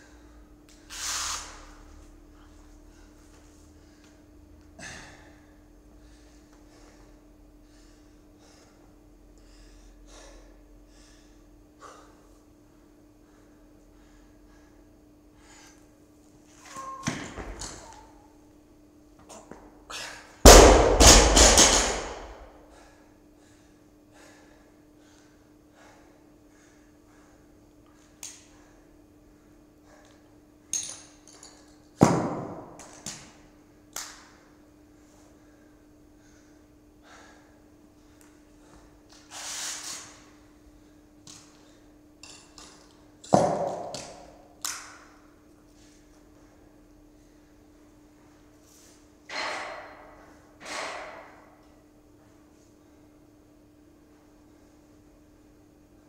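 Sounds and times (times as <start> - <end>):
barbell thumping on floor: 20.5 - 22.4.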